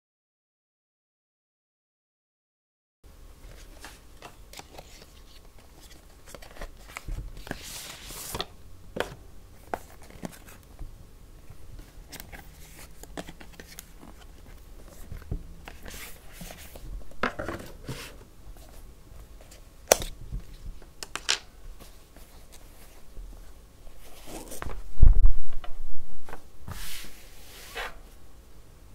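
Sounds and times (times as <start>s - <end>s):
cardboard and paper rustling: 3.4s - 10.6s, 11.8s - 20.8s, 21.8s - 24.9s.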